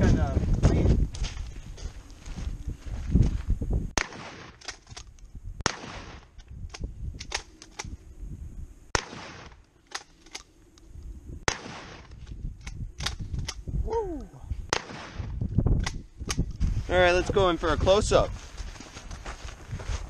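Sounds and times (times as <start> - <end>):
shotgun shots with echo: 4.0 - 4.6, 5.6 - 6.3, 8.9 - 9.6, 11.5 - 12.1, 14.7 - 15.4.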